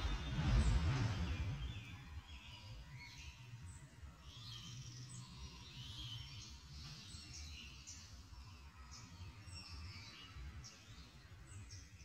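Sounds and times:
low rumble: 0.0s - 2.9s
small birds chirping: 0.0s - 12.0s.

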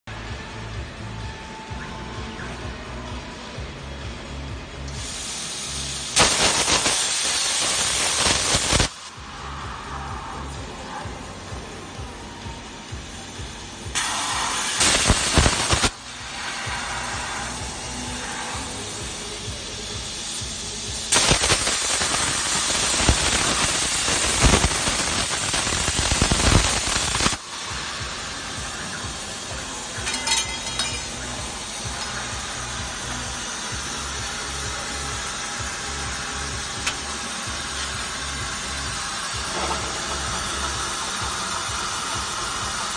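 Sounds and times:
plasma torch hissing: 4.4s - 11.6s, 13.1s - 42.9s
metallic clinks: 30.0s - 31.2s.

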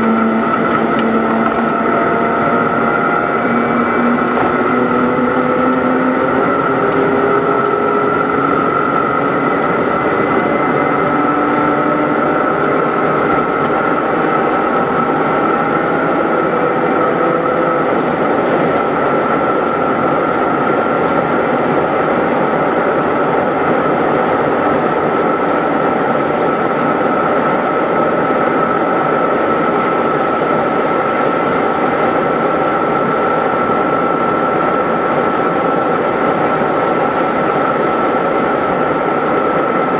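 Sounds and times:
car engine at full throttle: 0.0s - 39.9s
wind and road noise: 0.0s - 39.9s.

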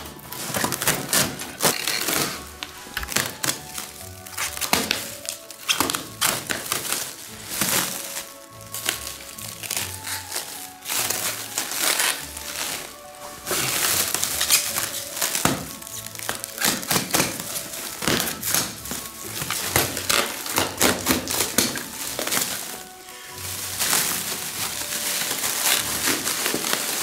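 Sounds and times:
background music: 0.0s - 27.0s
plastic wrap crinkling: 0.0s - 27.0s.

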